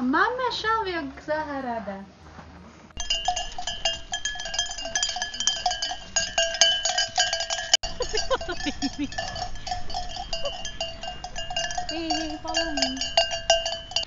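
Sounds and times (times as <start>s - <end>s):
sheep bells clanking: 3.0s - 14.0s.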